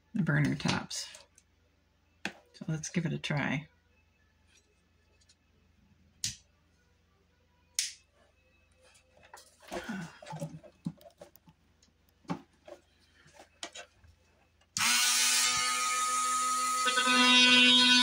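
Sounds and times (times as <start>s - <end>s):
small taps and rustles: 10.2s - 14.2s.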